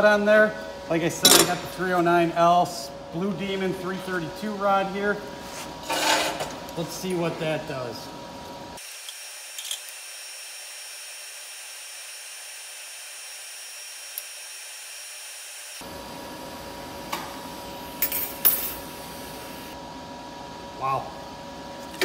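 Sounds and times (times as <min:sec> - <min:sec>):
welding arc hissing: 0:08.8 - 0:15.8, 0:17.7 - 0:19.8.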